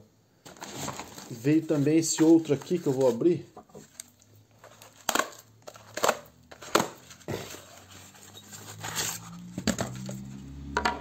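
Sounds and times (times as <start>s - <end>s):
knife cutting tape and cardboard: 5.0s - 10.2s.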